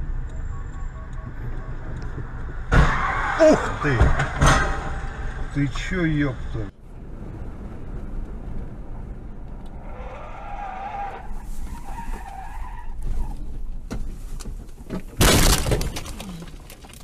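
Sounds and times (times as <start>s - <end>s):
road noise: 0.0s - 17.0s
car tyres skidding and squealing: 0.4s - 5.5s, 9.6s - 14.4s
car crashing into brush: 15.2s - 16.5s.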